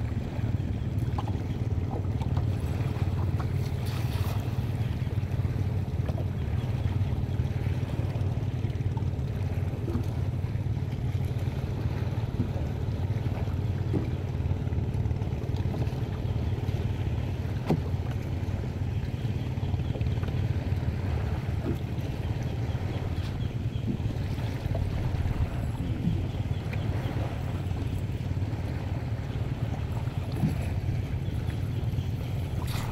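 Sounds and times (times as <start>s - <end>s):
small waves lapping: 0.0s - 32.9s
wind buffeting microphone: 20.9s - 32.9s.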